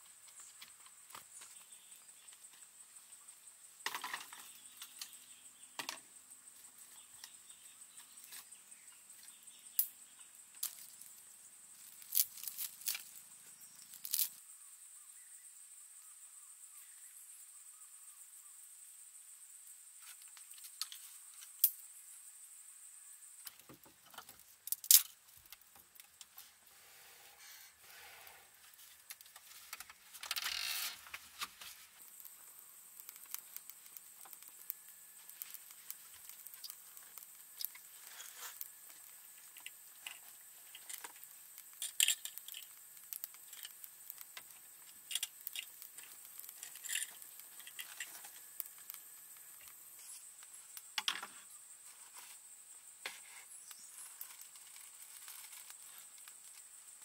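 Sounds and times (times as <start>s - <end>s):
rustling: 26.1s - 57.0s.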